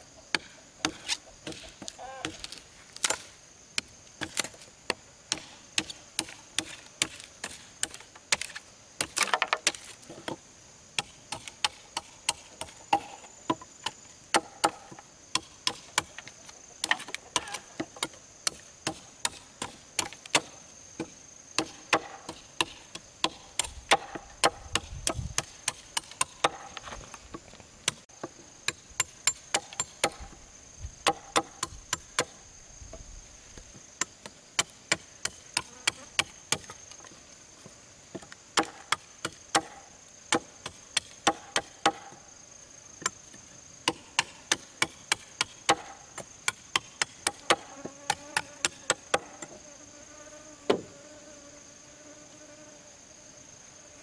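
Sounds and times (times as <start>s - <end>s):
forest insects droning: 0.0s - 54.0s
hand tool striking bamboo: 0.3s - 10.4s, 11.0s - 27.0s, 27.9s - 30.4s, 38.2s - 42.2s, 43.9s - 49.4s.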